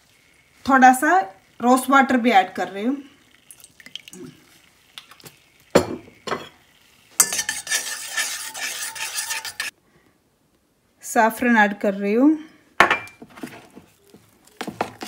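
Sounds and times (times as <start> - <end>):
metal spoon stirring in saucepan: 0.2 - 9.8, 13.0 - 15.0.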